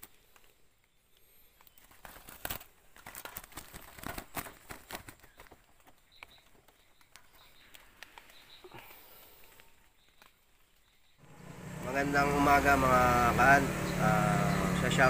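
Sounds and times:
wire-mesh trap clicking and rattling: 1.6s - 5.2s
dry leaves rustling and crackling: 1.6s - 6.3s.

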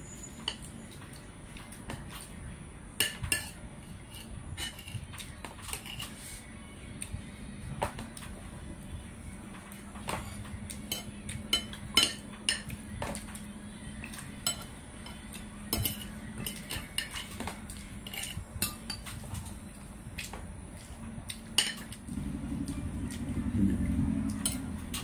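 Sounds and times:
steady low hum: 0.0s - 25.0s
spoon clinking on dishes: 10.2s - 12.8s, 14.4s - 17.4s, 18.0s - 19.2s, 21.6s - 22.0s
low rumble: 22.0s - 25.0s.

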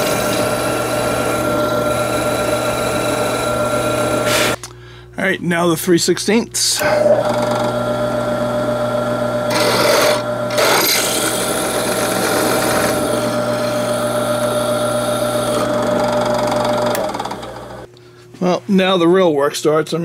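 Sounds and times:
drill bit cutting metal: 0.0s - 4.6s, 6.8s - 17.9s
drill press motor whine: 0.0s - 4.6s, 6.7s - 17.9s.

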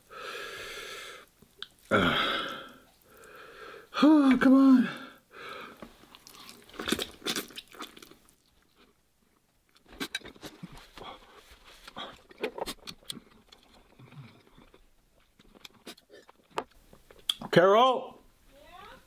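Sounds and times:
person chewing noodles: 1.2s - 3.7s, 6.0s - 17.4s.

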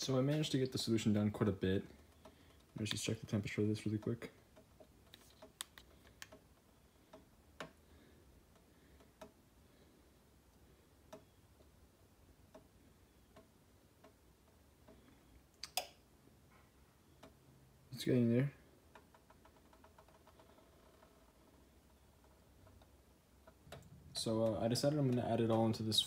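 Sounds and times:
faint clicks: 3.8s - 7.8s.

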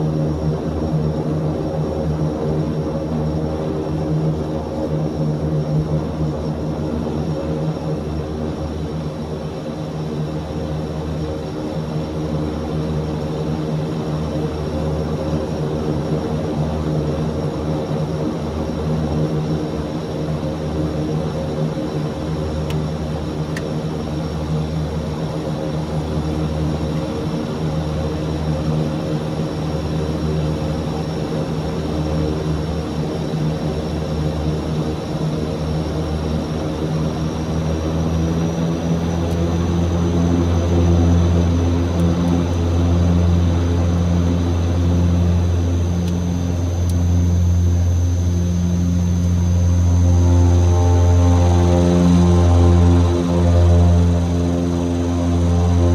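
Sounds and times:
turboprop engines droning: 0.0s - 55.9s.

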